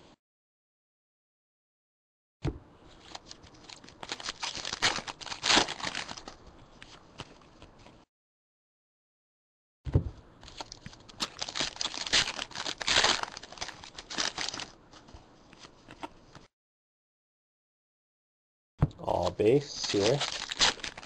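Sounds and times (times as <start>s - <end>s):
foil wrapper tearing and crinkling: 3.1s - 6.4s, 10.5s - 14.8s, 19.7s - 21.0s.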